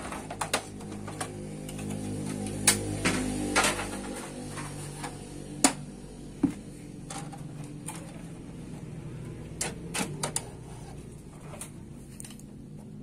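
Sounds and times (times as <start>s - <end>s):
plastic parts clicking and knocking: 0.0s - 5.8s, 6.4s - 8.8s, 9.4s - 10.6s.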